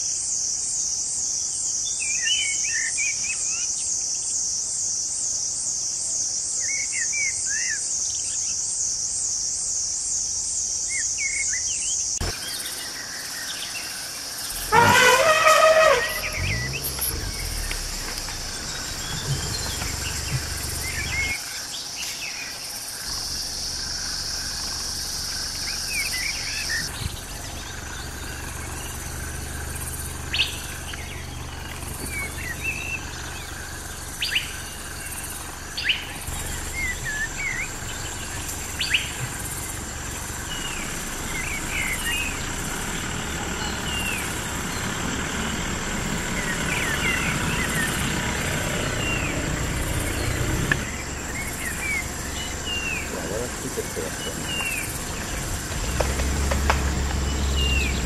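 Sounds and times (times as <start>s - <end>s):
birds chirping and calling: 10.9s - 58.0s
high insect buzz: 12.1s - 43.0s
low hum: 14.5s - 21.4s.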